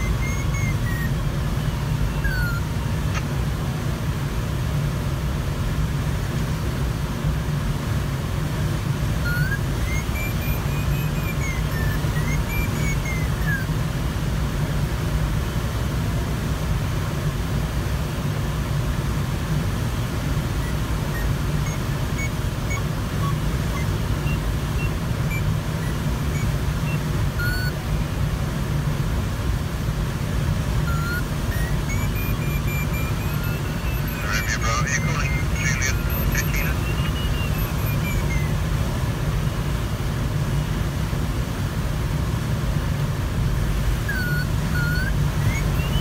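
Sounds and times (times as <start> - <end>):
electronic tones gliding in pitch: 0.0 - 3.2, 9.2 - 13.8, 20.6 - 27.8, 30.8 - 38.7, 44.0 - 46.0
short electronic beeps: 0.0 - 3.3, 9.1 - 13.8, 20.4 - 28.0, 30.6 - 39.7, 43.9 - 46.0.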